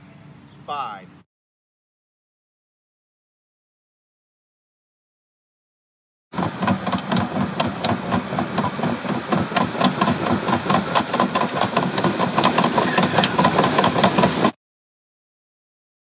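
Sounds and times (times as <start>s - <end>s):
loader engine running: 6.4s - 14.6s.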